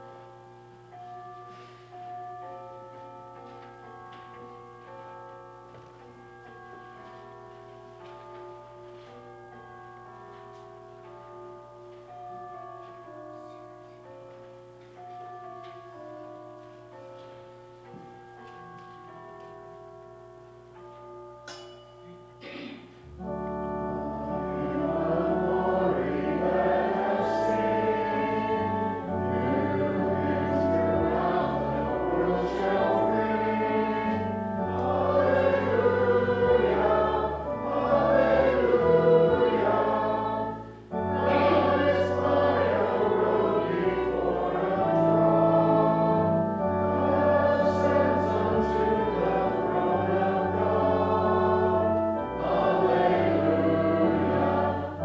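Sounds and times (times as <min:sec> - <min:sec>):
keyboard accompaniment: 0:00.0 - 0:55.0
congregation singing a hymn: 0:22.4 - 0:55.0.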